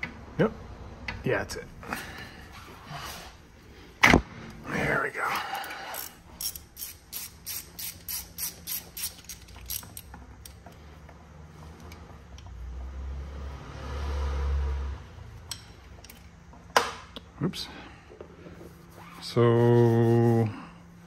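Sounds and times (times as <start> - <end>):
ratchet wrench clicking: 5.6 - 10.6, 15.5 - 16.3.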